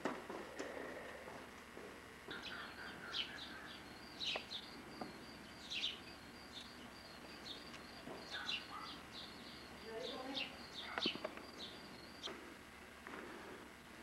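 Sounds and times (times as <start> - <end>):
small birds chirping: 2.2 - 12.5.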